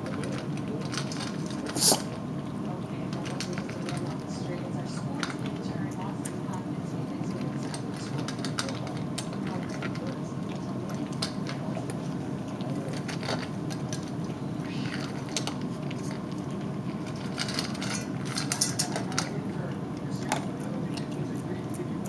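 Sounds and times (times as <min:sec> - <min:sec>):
dog crunching dry kibble: 0:00.0 - 0:06.6, 0:07.2 - 0:22.0
kibble clinking on metal bowl: 0:07.3 - 0:11.9, 0:14.9 - 0:21.8.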